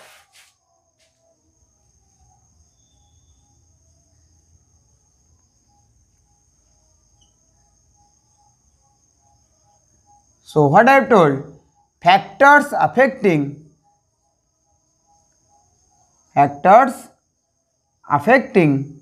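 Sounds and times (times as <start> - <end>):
faint regular chirps: 2.3 - 4.2, 5.6 - 10.5.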